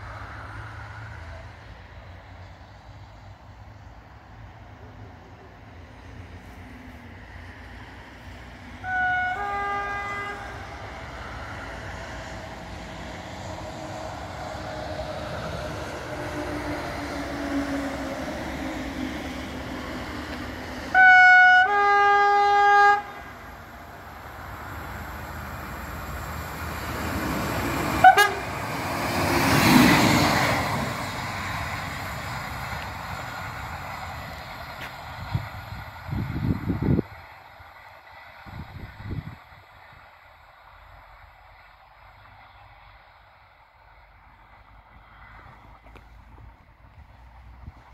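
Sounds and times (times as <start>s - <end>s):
two-tone train horn: 8.8s - 11.0s, 20.9s - 23.4s, 28.0s - 28.6s.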